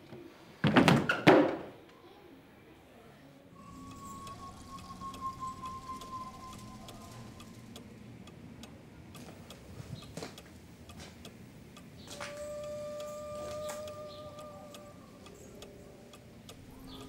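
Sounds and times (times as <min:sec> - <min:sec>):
held musical tone: 0:03.6 - 0:09.7, 0:10.6 - 0:17.0
clock ticking: 0:03.6 - 0:17.0.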